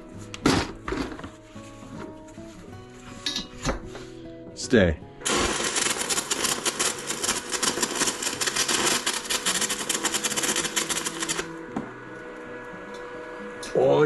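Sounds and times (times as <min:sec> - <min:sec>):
arc welder crackling: 0:05.2 - 0:11.7.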